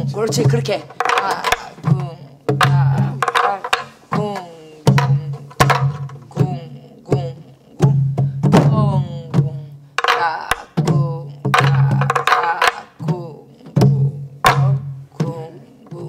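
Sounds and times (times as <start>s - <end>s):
stick strokes on drum: 0.3s - 6.2s.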